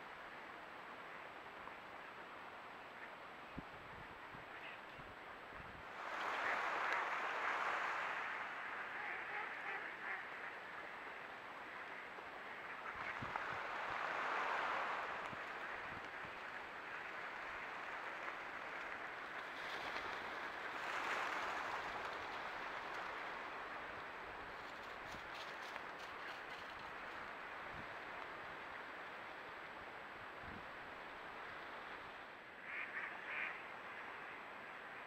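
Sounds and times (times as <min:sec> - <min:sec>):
ducks quacking: 0:08.7 - 0:10.6, 0:32.6 - 0:34.2.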